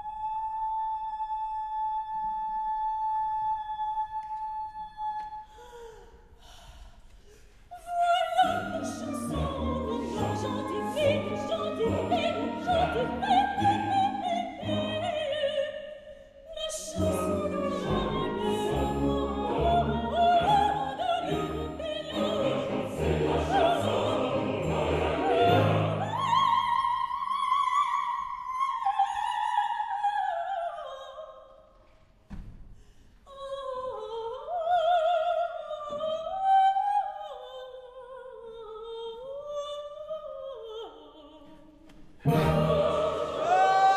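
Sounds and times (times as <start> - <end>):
woman singing opera: 0.0 - 6.9, 7.7 - 31.6, 33.3 - 43.9
string orchestra: 8.0 - 15.7, 16.7 - 26.9, 42.2 - 43.9.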